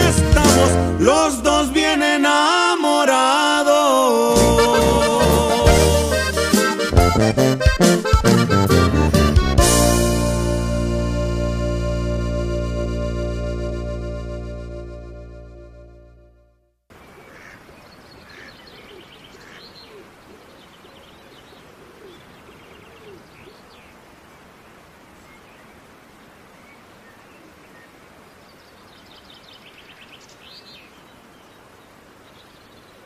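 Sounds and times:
outdoor noise hiss: 0.0 - 6.9, 16.9 - 33.0
lower arching bird calls: 16.9 - 24.5
high chattering bird calls: 17.0 - 24.0.

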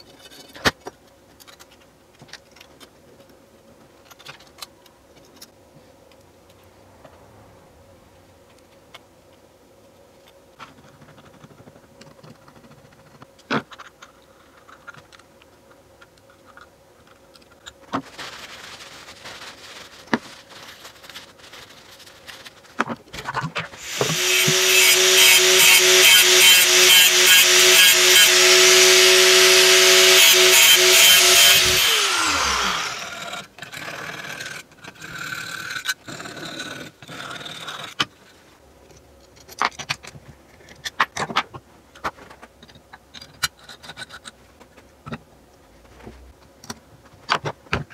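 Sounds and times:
angle grinder whining: 23.8 - 33.5.

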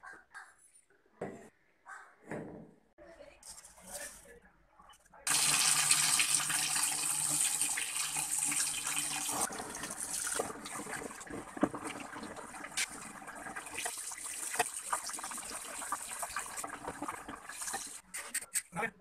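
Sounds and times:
tap water gushing into tub: 5.3 - 18.0.

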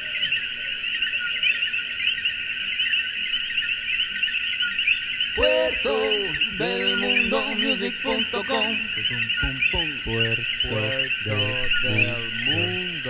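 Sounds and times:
frogs chirping in chorus: 0.0 - 13.0
person speaking: 5.4 - 13.0.

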